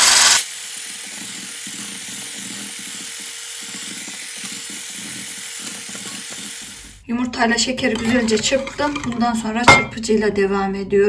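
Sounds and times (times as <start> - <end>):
electric hand blender whirring: 0.0 - 7.0.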